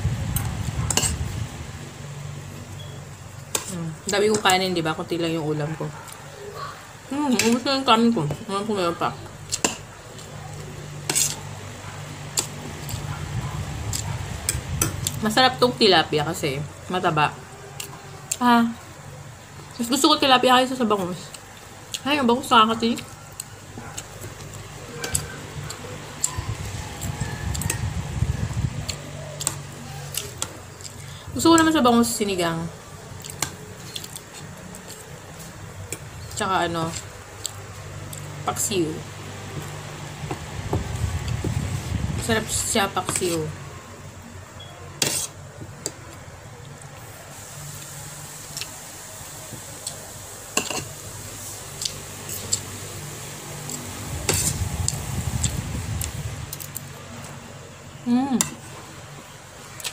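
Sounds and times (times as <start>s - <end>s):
spoon scraping a plate: 11.0s - 11.4s, 45.0s - 45.4s, 54.2s - 54.6s.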